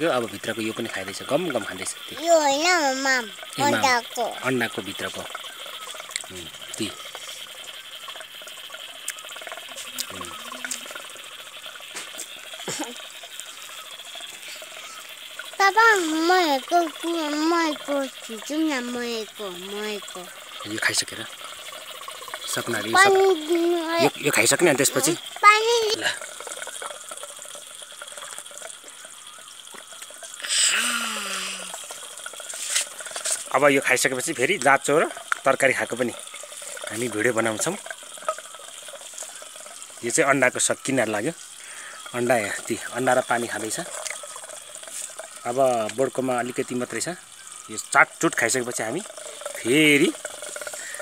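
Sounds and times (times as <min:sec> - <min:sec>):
child slurping water: 0:00.0 - 0:47.0, 0:47.7 - 0:51.0
child low vocal sounds: 0:15.6 - 0:20.3, 0:30.4 - 0:31.8
child breathy aah: 0:30.4 - 0:31.8.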